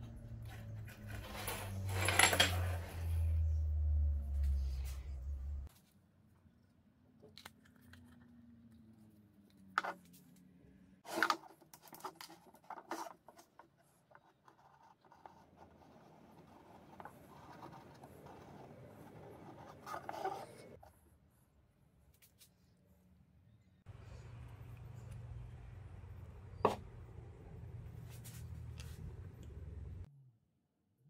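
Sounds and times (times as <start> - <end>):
marker rubbing on plastic pipe: 12.6 - 20.9.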